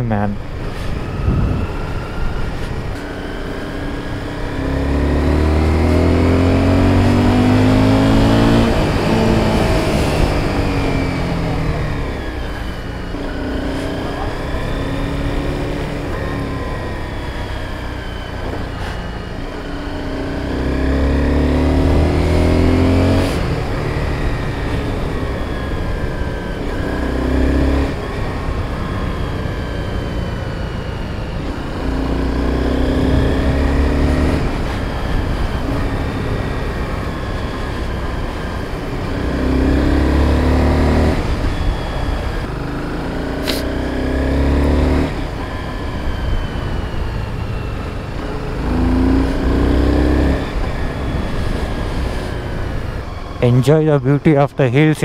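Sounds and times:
wind noise: 0.4 - 3.0
motorcycle engine running: 19.5 - 53.4.

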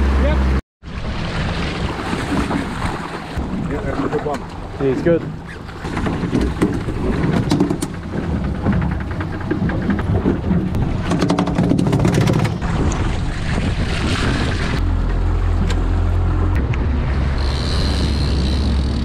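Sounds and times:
low boat engine rumble: 0.0 - 19.0
water: 0.0 - 19.0
sharp knocks: 5.8 - 12.6
wind on microphone: 5.9 - 14.9.

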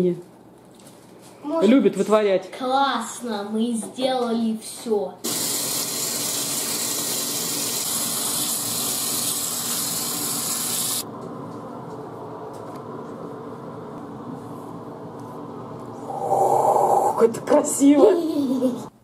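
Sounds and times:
tap water running into sink: 5.3 - 11.0.

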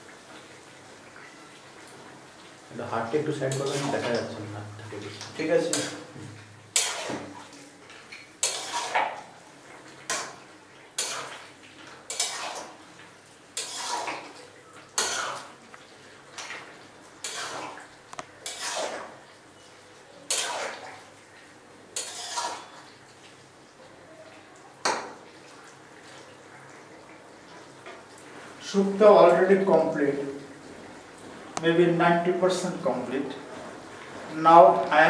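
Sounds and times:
metal spatula scraping a wok: 6.8 - 7.2, 8.4 - 9.0, 11.0 - 11.4, 12.1 - 12.7, 13.6 - 14.3, 15.0 - 15.5, 17.2 - 17.8, 18.4 - 19.1, 20.3 - 20.8, 22.0 - 22.8.

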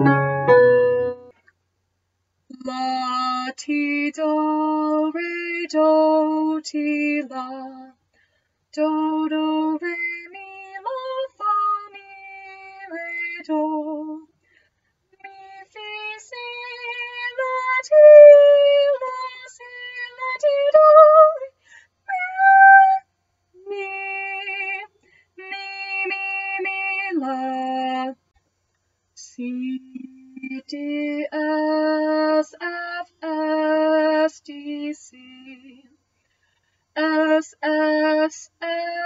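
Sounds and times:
woman singing unaccompanied: 2.6 - 8.0, 8.8 - 14.3, 15.2 - 21.5, 23.6 - 28.2, 29.2 - 35.9, 37.0 - 39.0.

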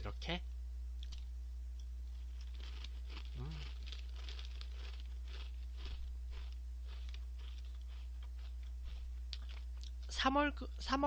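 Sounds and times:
steady low hum: 0.0 - 11.0
crunchy crackers being chewed: 2.0 - 10.1.

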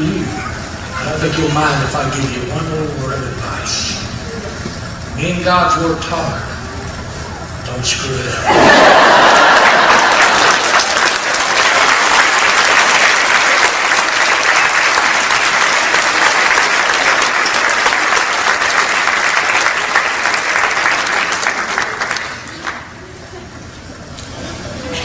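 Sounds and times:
large audience applauding: 8.5 - 23.0.

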